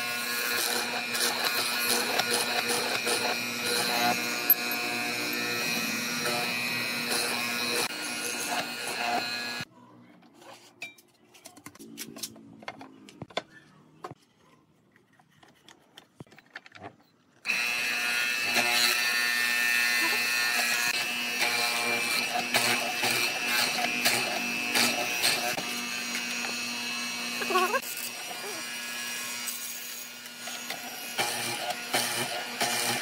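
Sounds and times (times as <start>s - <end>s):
mortiser motor humming: 0.0s - 9.7s, 17.4s - 33.0s
chisel cutting into wood: 0.4s - 9.6s.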